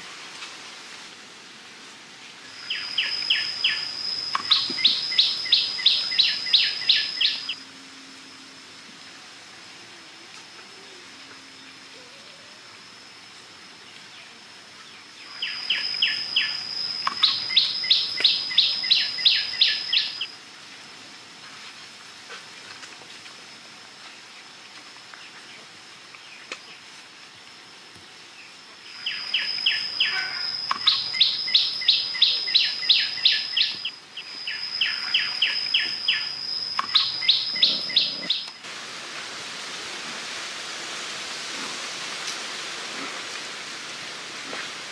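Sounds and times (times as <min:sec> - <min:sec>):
faint high whine: 0:00.0 - 0:44.9
steady hiss: 0:00.0 - 0:44.9
animal calls with sharp chirps: 0:02.6 - 0:07.6, 0:15.3 - 0:20.3, 0:28.9 - 0:38.6.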